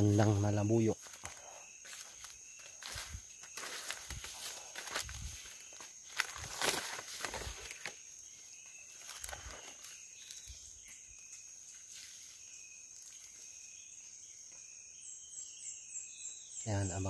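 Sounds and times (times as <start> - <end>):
footsteps in dry leaves: 0.0 - 10.6
high-pitched insect drone: 0.0 - 17.0
short insect chirps: 0.0 - 17.0.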